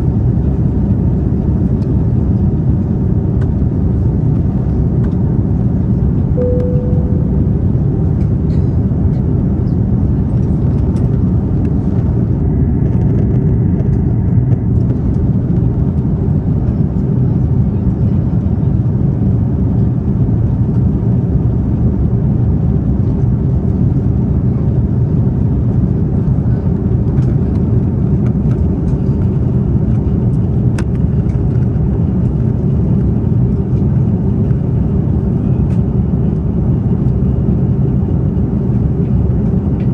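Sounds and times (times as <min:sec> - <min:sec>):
jet cabin engine rumble: 0:00.0 - 0:39.9
short single tone: 0:06.4 - 0:08.1.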